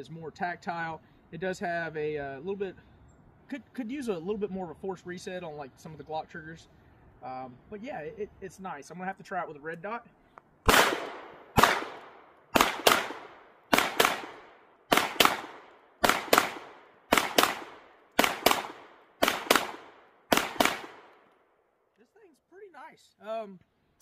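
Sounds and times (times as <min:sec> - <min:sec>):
pistol shots: 0:10.6 - 0:21.3.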